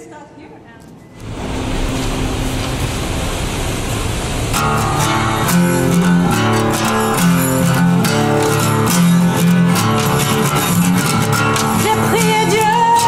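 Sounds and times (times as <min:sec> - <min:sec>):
acoustic guitar playing: 0:01.2 - 0:13.0
woman singing: 0:11.6 - 0:13.0.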